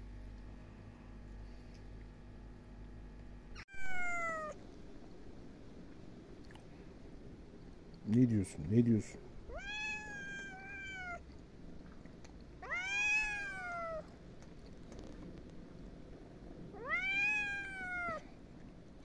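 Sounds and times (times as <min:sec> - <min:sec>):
kitten meowing: 0:03.6 - 0:04.6, 0:09.5 - 0:11.2, 0:12.6 - 0:14.1, 0:16.8 - 0:18.2.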